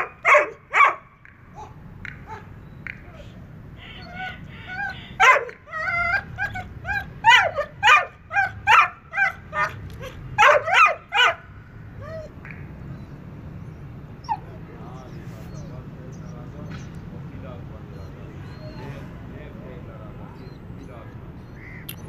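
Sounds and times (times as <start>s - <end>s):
dog yelping: 0.0s - 2.5s, 3.1s - 12.4s, 13.0s - 16.2s, 17.9s - 19.2s, 20.3s - 21.8s
dog whining and yipping: 4.0s - 11.4s, 12.0s - 12.3s, 13.0s - 16.2s, 17.9s - 19.2s, 20.3s - 21.6s.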